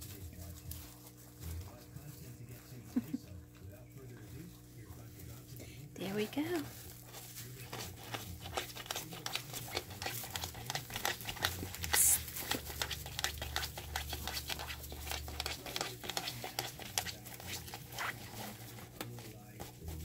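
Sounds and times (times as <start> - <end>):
wood shavings rustling and crackling: 3.9 - 20.0.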